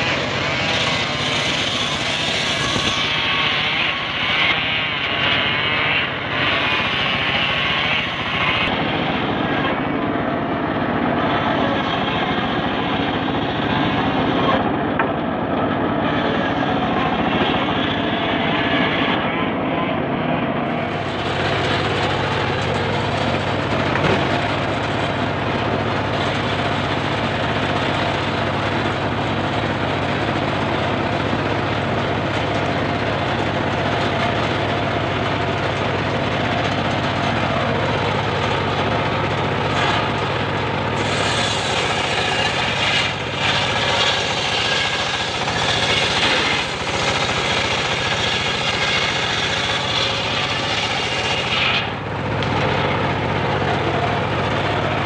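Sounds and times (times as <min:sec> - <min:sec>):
circular saw blade spinning: 0:20.8 - 0:55.0.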